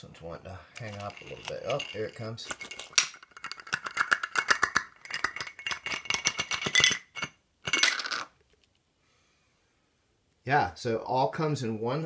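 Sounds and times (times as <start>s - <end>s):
metal tins clattering on wood: 0.8s - 8.3s.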